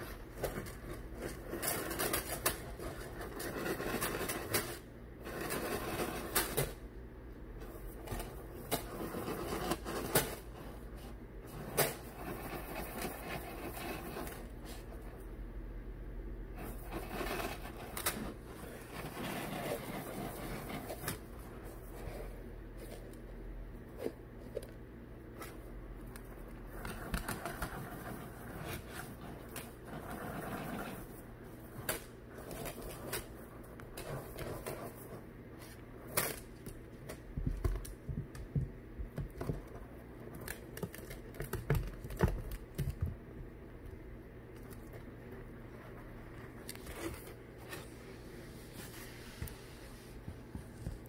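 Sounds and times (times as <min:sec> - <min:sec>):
ferret digging through dry rice: 0:16.6 - 0:23.0.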